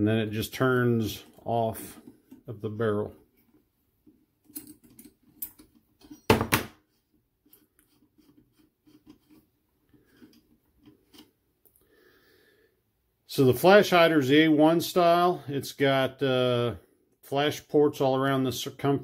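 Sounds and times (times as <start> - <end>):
small metallic clicks and rattling: 4.4 - 6.3.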